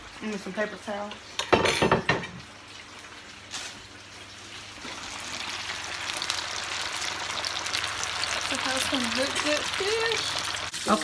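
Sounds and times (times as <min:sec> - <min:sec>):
fish sizzling in hot oil: 0:02.4 - 0:11.0.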